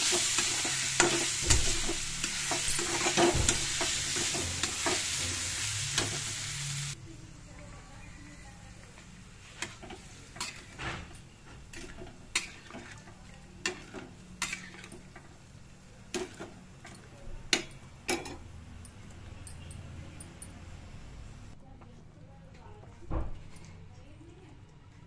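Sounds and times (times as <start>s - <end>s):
metal spatula clinking on a steel pot: 9.6s - 15.2s, 16.1s - 20.6s.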